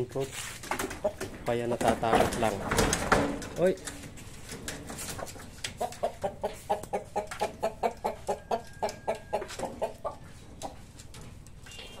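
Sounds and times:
chicken clucking: 0.8s - 1.8s, 5.0s - 12.0s.

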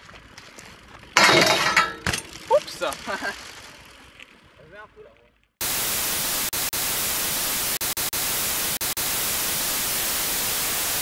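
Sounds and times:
white-noise static: 5.6s - 11.0s.

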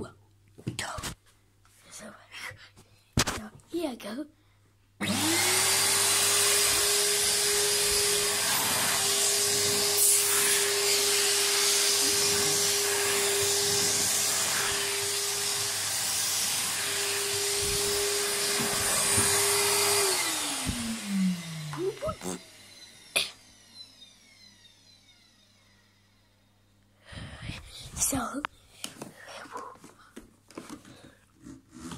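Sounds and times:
vacuum cleaner running: 5.0s - 27.3s.

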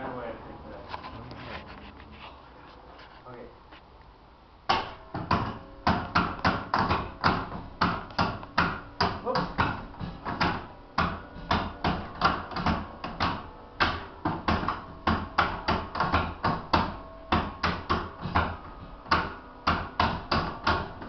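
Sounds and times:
faint church bells ringing: 12.9s - 15.7s, 16.3s - 19.6s.

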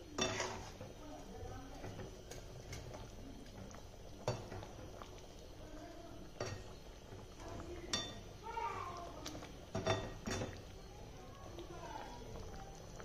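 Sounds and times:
spatula stirring thick gravy: 0.0s - 5.5s.

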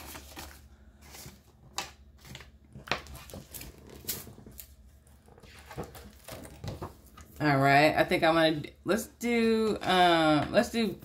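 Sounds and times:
paper bills rustling: 0.0s - 4.8s.

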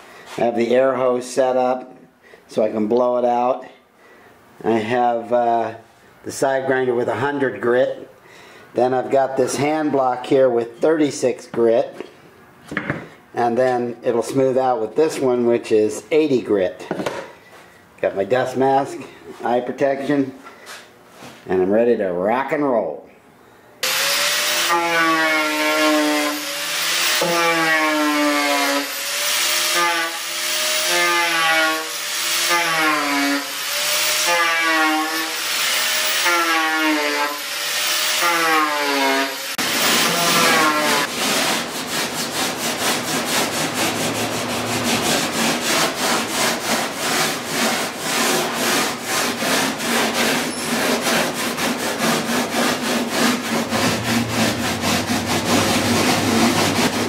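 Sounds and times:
grinder sanding foam: 23.8s - 57.0s
sanding block rasping on foam: 24.3s - 57.0s.

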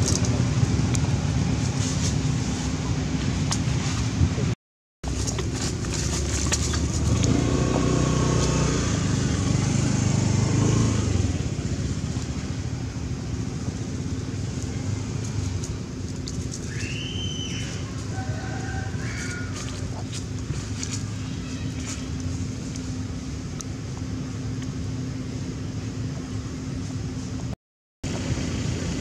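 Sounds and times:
motorbike passing by: 5.6s - 15.9s.

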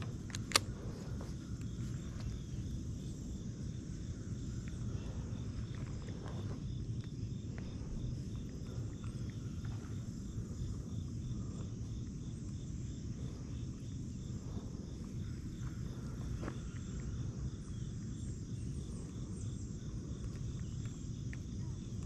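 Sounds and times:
faint clicks: 0.0s - 2.3s
insects chirping: 0.0s - 22.0s
low steady rumble: 0.0s - 22.0s.

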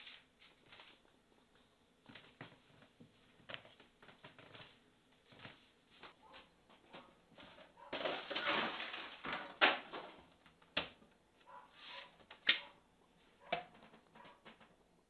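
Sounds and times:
objects rustling and sliding: 0.0s - 10.6s, 11.4s - 12.4s.

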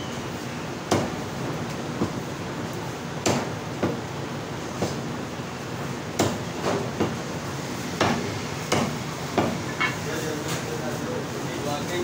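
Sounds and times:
cleaver chopping meat on wood: 0.9s - 1.2s, 3.2s - 4.0s, 6.1s - 7.2s, 8.0s - 9.6s.

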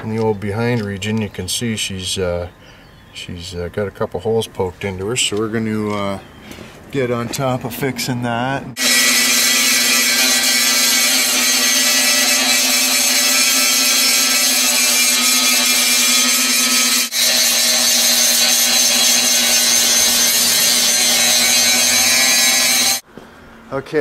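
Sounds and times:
angle grinder grinding steel: 8.8s - 23.0s
motor whine: 8.8s - 23.0s.

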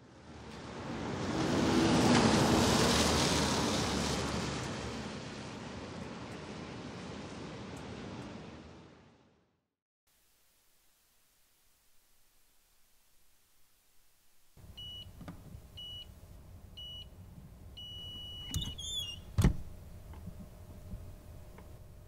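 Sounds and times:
heat press control beeping: 14.7s - 15.2s, 15.8s - 16.1s, 16.8s - 17.1s, 17.8s - 19.4s
brief squeak: 18.0s - 19.4s.

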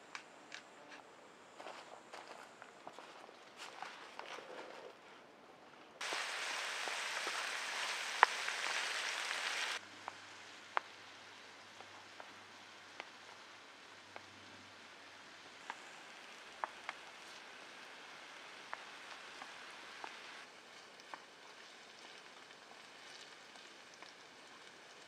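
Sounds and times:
heavy rain hissing: 6.0s - 25.0s.

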